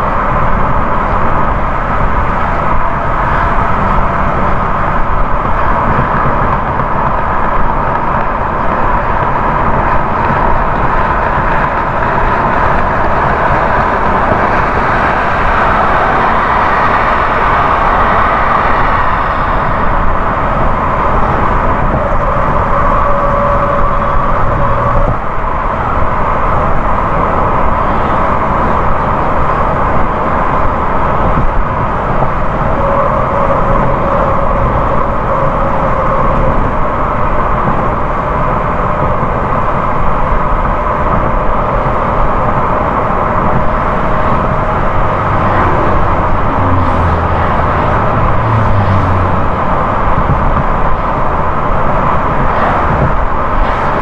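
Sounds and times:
car engine hum: 0:00.0 - 0:54.0
tyre and road noise: 0:00.0 - 0:54.0.

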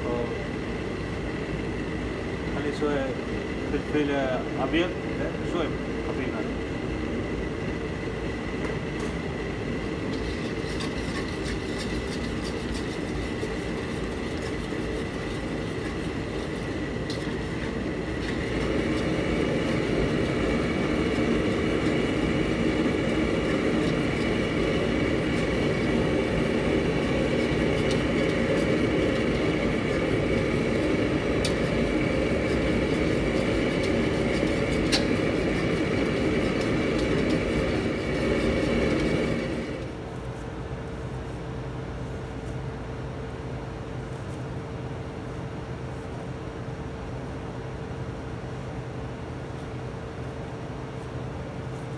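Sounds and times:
roar of gas range and exhaust: 0:00.0 - 0:39.9.

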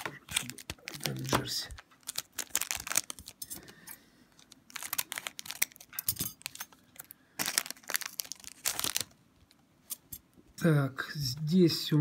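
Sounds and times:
foil wrapper crinkling and tearing: 0:00.0 - 0:03.7, 0:04.3 - 0:09.2.

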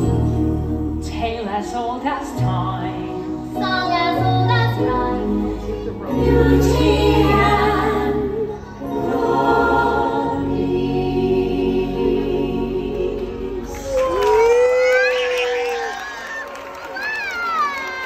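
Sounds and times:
choir singing held notes: 0:06.0 - 0:14.2.

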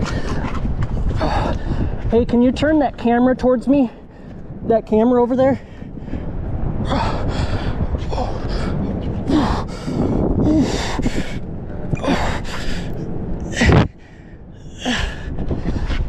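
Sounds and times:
man breathing hard: 0:00.0 - 0:02.1, 0:05.6 - 0:16.0
low rumble: 0:00.0 - 0:16.0.

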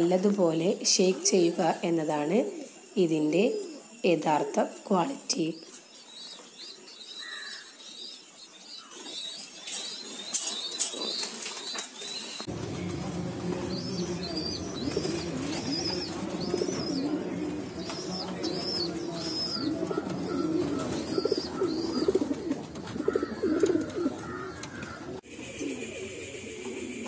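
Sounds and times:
pigeons cooing: 0:00.0 - 0:04.8, 0:05.9 - 0:27.0
bird chirping high: 0:02.4 - 0:12.5, 0:13.7 - 0:22.4.

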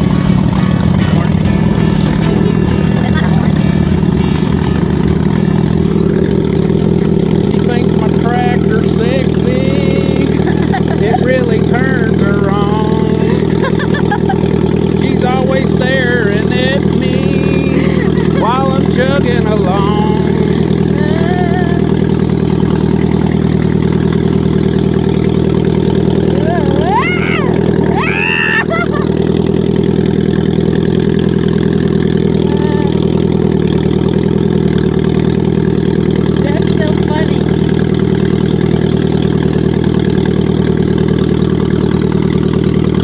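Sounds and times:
tractor engine chugging: 0:00.0 - 0:43.0.

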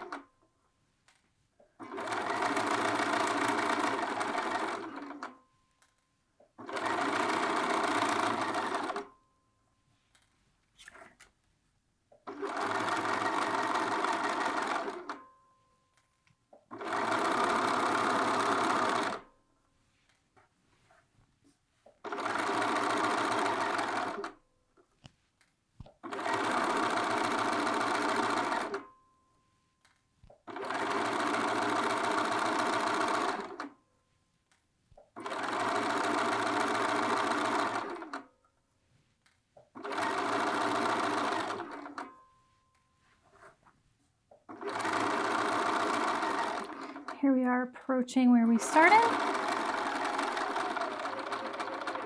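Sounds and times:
sewing machine stitching: 0:00.0 - 0:00.3, 0:01.7 - 0:05.4, 0:06.6 - 0:09.1, 0:12.2 - 0:15.2, 0:16.6 - 0:19.3, 0:22.0 - 0:24.4, 0:26.0 - 0:28.9, 0:30.3 - 0:33.7, 0:35.0 - 0:38.3, 0:39.6 - 0:42.1, 0:44.4 - 0:47.6, 0:48.4 - 0:52.0.

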